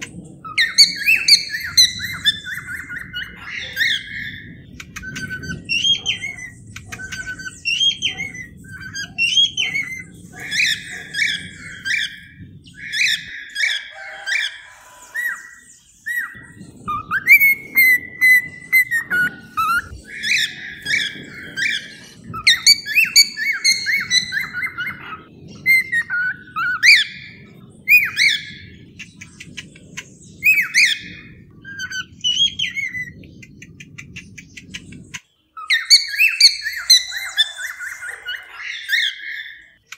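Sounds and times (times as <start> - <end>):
cockatiels chirping and whistling: 0.0 - 39.8.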